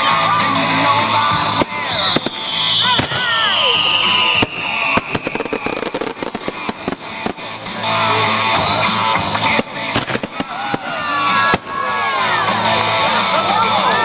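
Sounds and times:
music: 0.0s - 14.0s
firework shells bursting: 1.4s - 7.8s, 9.3s - 11.8s.

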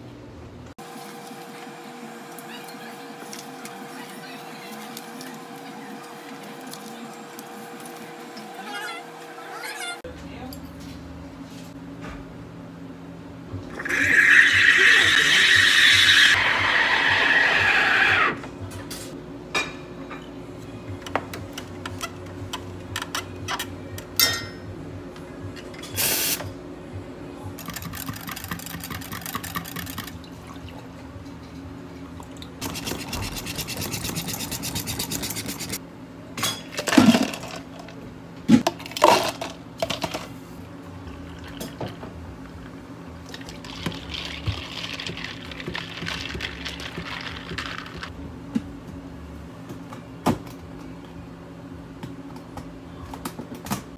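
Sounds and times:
steady low hum: 18.4s - 36.4s.

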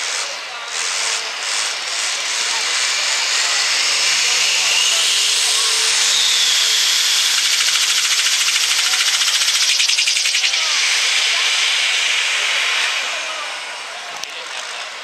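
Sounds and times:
diesel engine under load: 0.3s - 10.0s
high whine: 2.1s - 15.0s.

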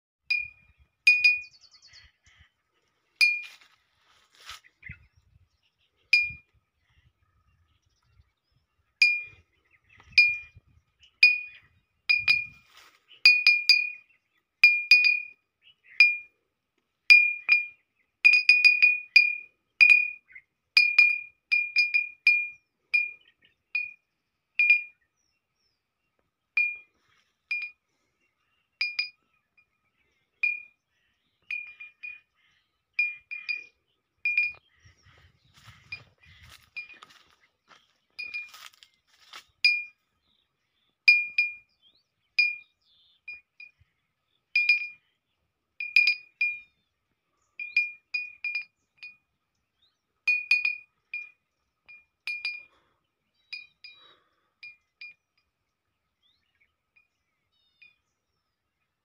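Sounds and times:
glass bottle clinking: 50.3s - 50.8s, 52.3s - 52.7s.

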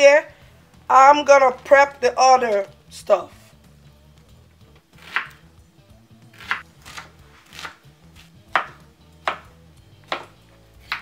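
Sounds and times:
cleaver chopping on wooden board: 5.0s - 5.4s, 6.3s - 11.0s.

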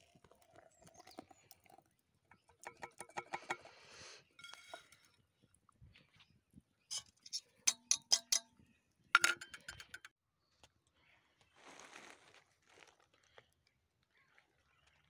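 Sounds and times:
steel utensils clinking: 2.4s - 3.7s, 4.4s - 5.1s, 6.9s - 8.6s, 9.2s - 10.1s.

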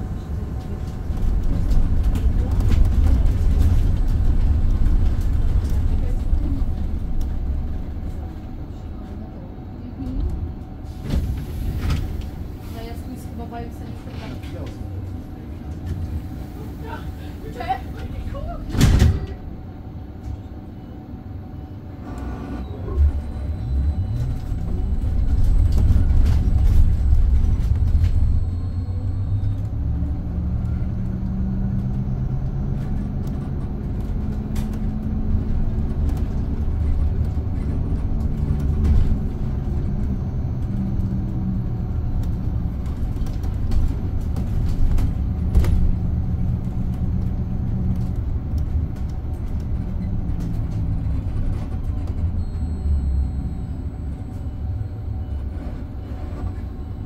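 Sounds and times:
electric bus rumbling: 0.0s - 57.0s
low steady hum: 0.0s - 57.0s.

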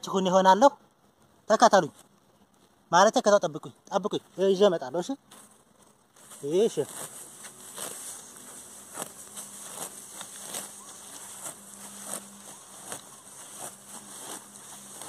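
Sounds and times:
grass rustling and crackling: 4.0s - 15.0s.

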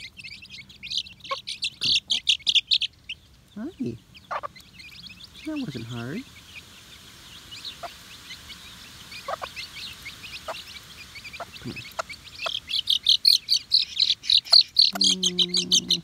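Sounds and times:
chicks peeping: 0.0s - 16.0s
hen low drawn-out call: 10.4s - 16.0s.

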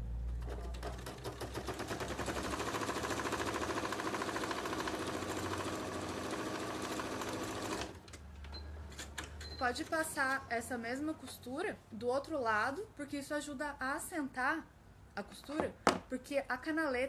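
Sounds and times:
sewing machine stitching: 0.3s - 8.0s.

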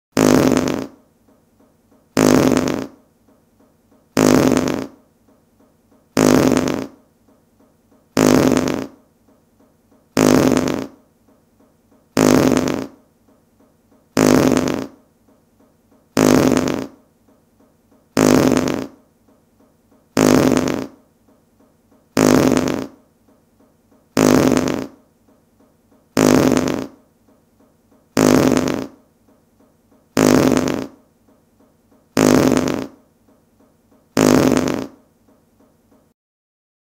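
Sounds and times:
short fart sound: 0.2s - 1.0s, 2.2s - 3.0s, 4.2s - 5.0s, 6.2s - 7.0s, 8.2s - 9.0s, 10.2s - 11.0s, 12.2s - 13.0s, 14.2s - 15.0s, 16.2s - 17.0s, 18.2s - 19.0s, 20.2s - 21.0s, 22.2s - 23.0s, 24.2s - 25.0s, 26.2s - 27.0s, 28.2s - 29.1s, 30.2s - 31.0s, 32.2s - 33.0s, 34.2s - 35.1s.

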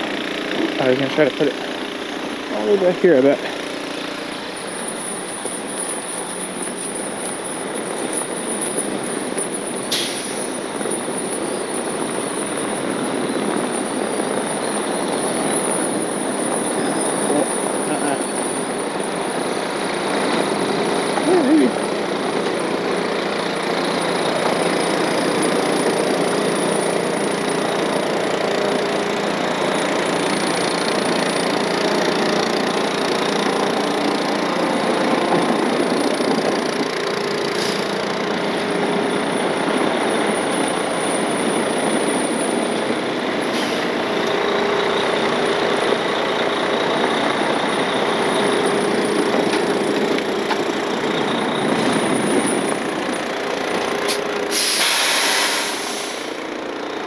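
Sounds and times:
diesel truck engine running: 0.0s - 57.0s
air brake hiss: 9.9s - 10.4s, 37.6s - 38.0s, 43.5s - 43.9s, 54.1s - 56.4s.

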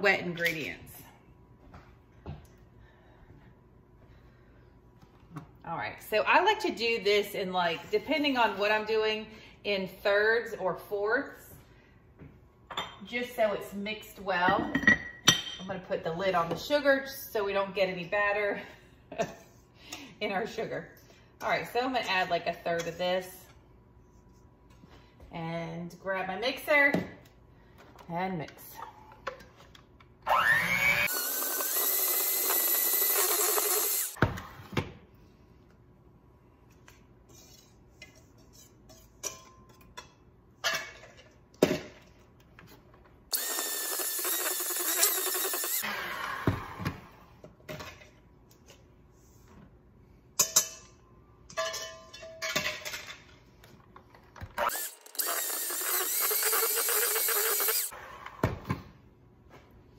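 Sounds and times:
electric hand mixer whirring: 30.3s - 34.2s, 43.3s - 46.6s, 54.6s - 57.9s.

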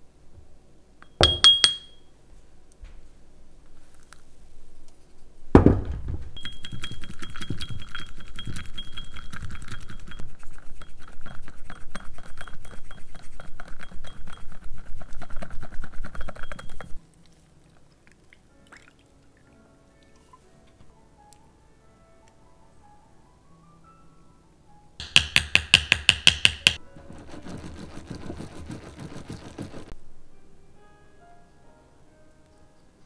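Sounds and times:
knock: 5.6s - 6.4s, 25.0s - 26.8s
whisk clinking in ceramic cup: 6.4s - 17.0s, 25.0s - 29.9s.

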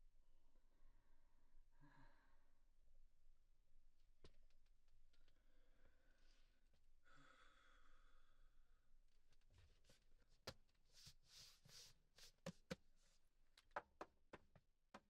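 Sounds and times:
hands rustling under table: 9.4s - 14.1s.

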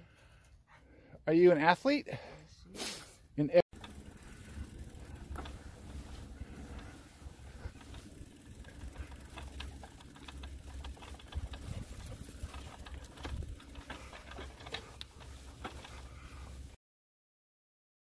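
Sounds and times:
bicycle rattling on dirt trail: 3.7s - 16.8s
wind rumble on microphone: 11.3s - 13.7s.

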